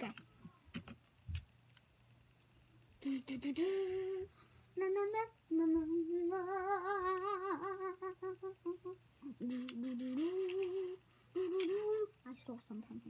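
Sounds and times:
child humming: 3.0s - 12.9s.

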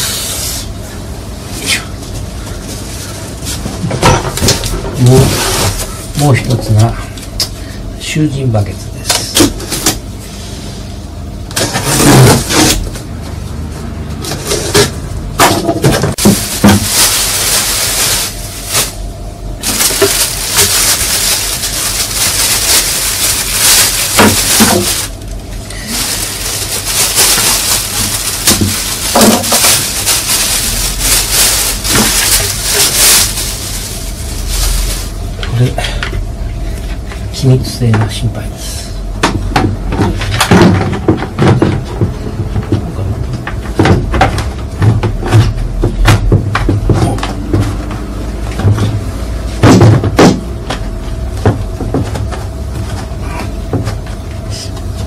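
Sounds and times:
knocks and scrapes of box and bucket: 11.5s - 13.0s, 14.3s - 17.4s, 23.6s - 25.2s, 25.9s - 30.3s, 39.6s - 42.9s
plastic film crinkling: 16.1s - 19.0s, 19.6s - 35.5s.

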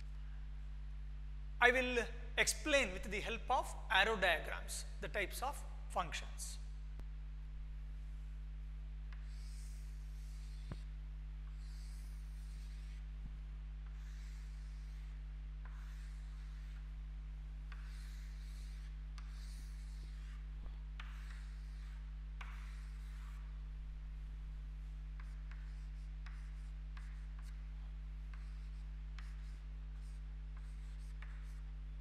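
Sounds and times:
steady low hum: 0.0s - 32.0s
chalk scraping on chalkboard: 9.1s - 13.1s, 13.8s - 17.0s, 17.6s - 23.6s, 24.8s - 31.7s.

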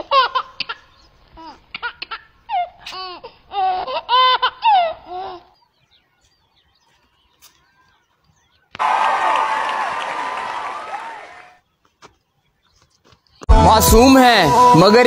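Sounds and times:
high-pitched laughter: 0.0s - 5.5s.

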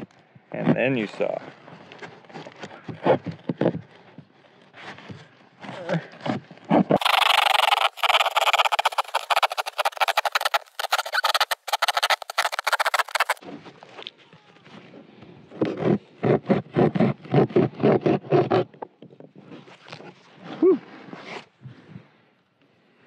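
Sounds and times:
knife sawing through cardboard: 5.7s - 13.4s, 15.7s - 18.7s.

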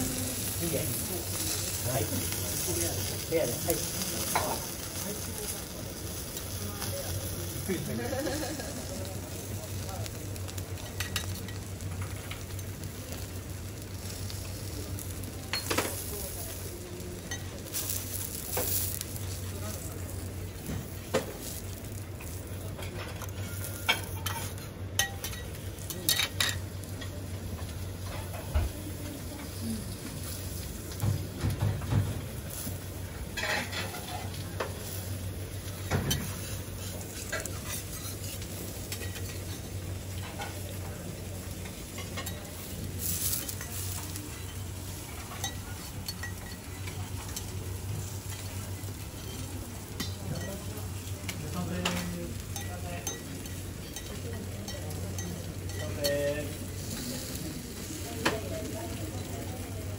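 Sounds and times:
potato wedges sizzling on griddle: 0.0s - 59.9s
metal spatulas scraping on griddle: 33.3s - 35.0s, 35.9s - 40.8s, 41.7s - 50.7s.

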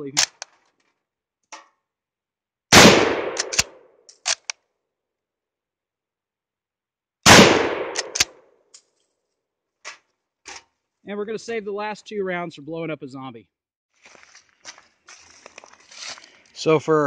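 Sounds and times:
rifle bolt clicks: 0.1s - 0.6s, 3.2s - 4.6s, 7.8s - 8.9s
rifle shots: 2.7s - 4.4s, 7.2s - 8.3s.

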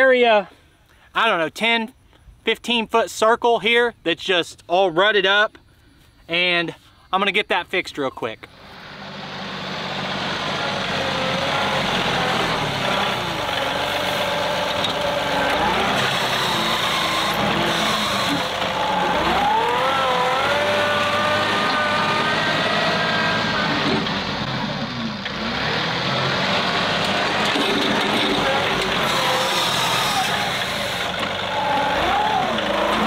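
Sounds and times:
tractor diesel engine under load: 8.4s - 33.0s.

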